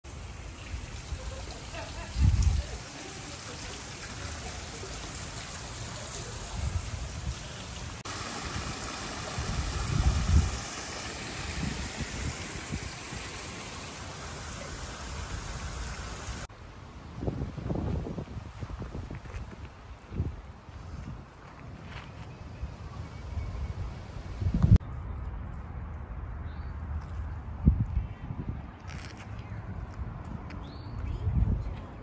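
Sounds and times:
water splashing and trickling: 0.0s - 16.5s.

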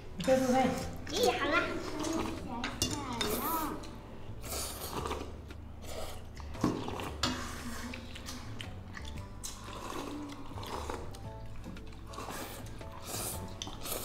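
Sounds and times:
chewing: 3.3s - 14.0s
child slurping noodles: 4.4s - 8.6s, 9.4s - 11.2s, 12.1s - 14.0s.

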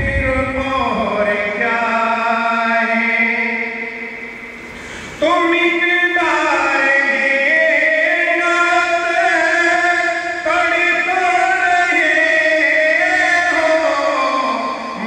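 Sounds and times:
person chanting devotional poem: 0.0s - 4.4s, 5.1s - 15.0s
person breathing: 4.6s - 5.2s.

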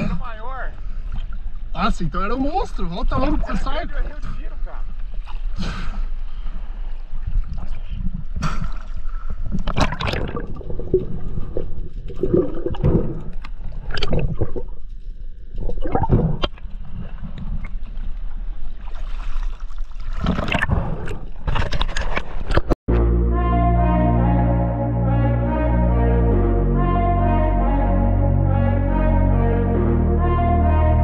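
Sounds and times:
water sloshing and gurgling: 0.0s - 1.8s, 2.8s - 22.8s
water splashes: 4.7s - 22.8s.

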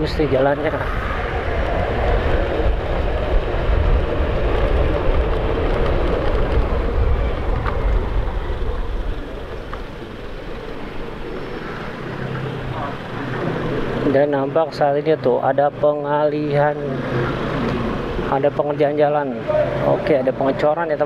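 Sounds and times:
wind buffeting microphone: 0.0s - 14.6s
motorcycle engine: 0.0s - 19.9s.

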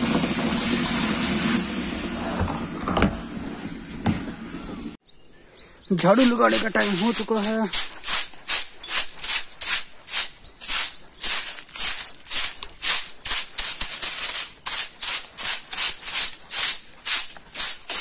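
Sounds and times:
broom sweeping dirt: 6.0s - 18.0s.

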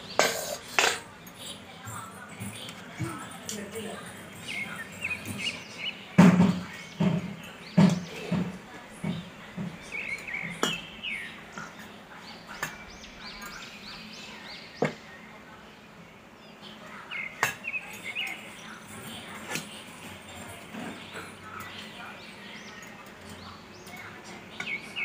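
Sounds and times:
steel ladle clinking on metal: 0.0s - 1.4s
birds chirping: 0.0s - 25.0s.

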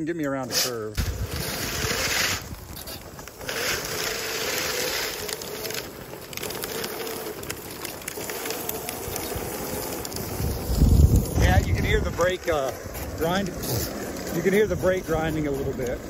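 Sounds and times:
brake caliper grinding on disc: 0.3s - 16.0s
go-kart tyres rumbling on asphalt: 0.4s - 16.0s.

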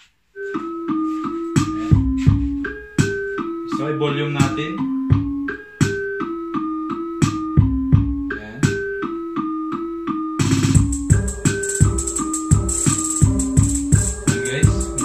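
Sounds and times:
bass line: 1.3s - 3.2s, 4.4s - 6.0s, 7.0s - 8.9s, 10.4s - 15.0s
percussion: 10.4s - 15.0s.

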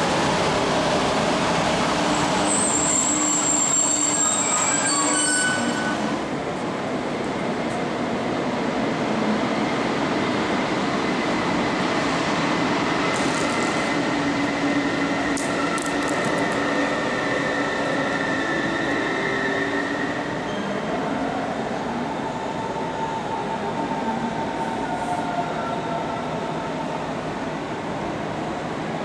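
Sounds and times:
train coaches rumbling past: 0.0s - 29.0s
high wheel squeal: 2.3s - 6.1s.

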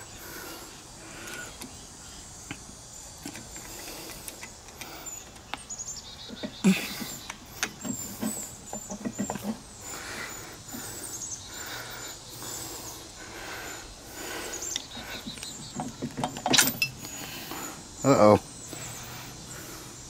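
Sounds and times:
birds chirping faintly: 0.0s - 20.0s
metal tools clinking: 15.8s - 17.1s.

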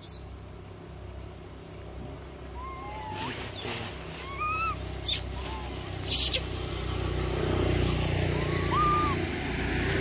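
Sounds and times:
vehicle low rumble: 0.0s - 10.0s
macaques squealing: 2.5s - 6.6s, 8.0s - 9.4s
monkey arched calls: 2.5s - 6.6s, 8.1s - 9.4s.

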